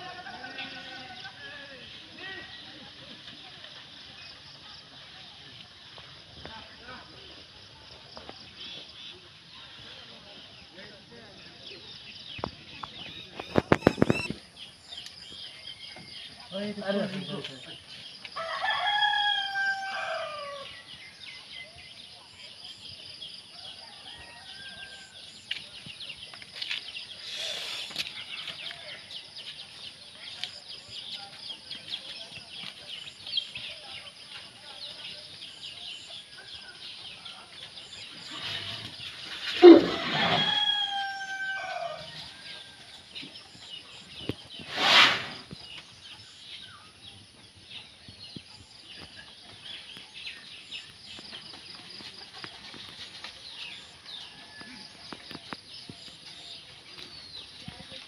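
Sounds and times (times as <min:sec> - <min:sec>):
rooster crowing: 0:18.4 - 0:20.7, 0:39.6 - 0:42.3
high-pitched background hiss: 0:26.6 - 0:28.4.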